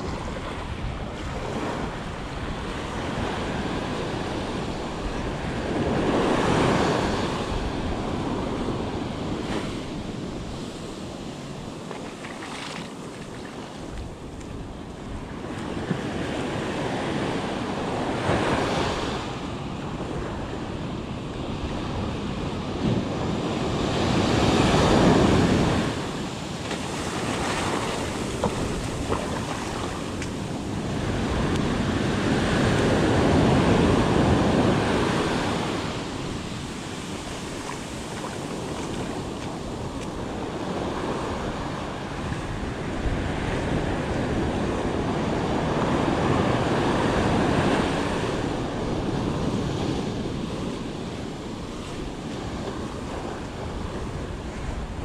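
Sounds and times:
ocean surf breaking: 0.0s - 55.0s.

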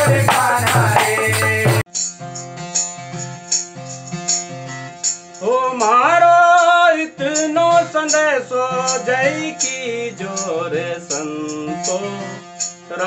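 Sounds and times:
man singing: 0.0s - 1.8s, 5.4s - 13.0s
loud music with rattle: 0.0s - 13.0s.

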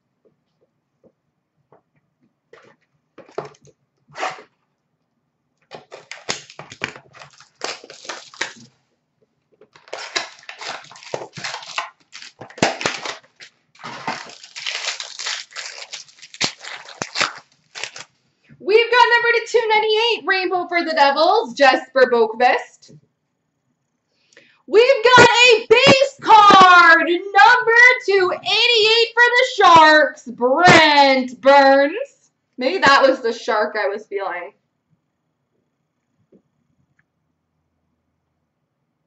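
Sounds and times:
foil wrapper crinkling and tearing: 5.7s - 8.7s, 9.7s - 18.2s.

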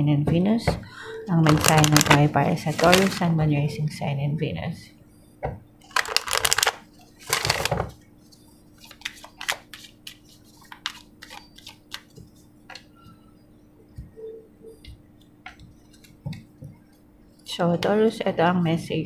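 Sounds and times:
cards riffle shuffled: 8.8s - 12.2s.

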